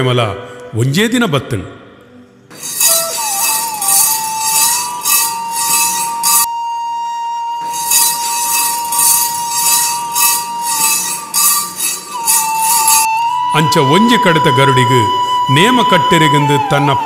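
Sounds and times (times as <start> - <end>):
metallic jingle beating: 2.5 - 6.5, 7.6 - 13.1.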